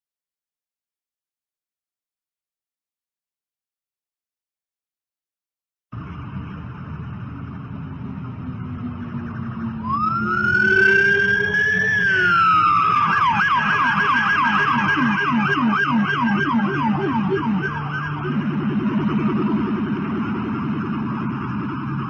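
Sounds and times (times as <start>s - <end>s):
traffic noise: 6.0s - 22.0s
police siren wailing and yelping: 8.6s - 22.0s.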